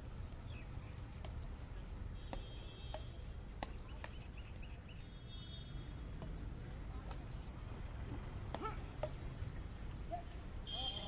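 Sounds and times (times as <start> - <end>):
rackets hitting shuttlecock: 2.3 - 4.3, 6.1 - 7.5, 8.4 - 9.5.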